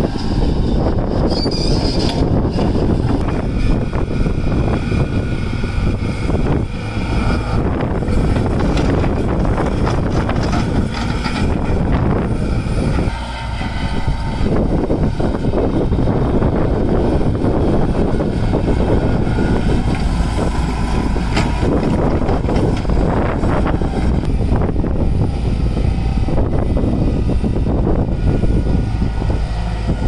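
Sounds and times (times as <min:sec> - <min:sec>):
excavator diesel engine rumbling: 0:00.0 - 0:30.0
soil dropping clunks: 0:07.1 - 0:13.0, 0:19.4 - 0:24.4.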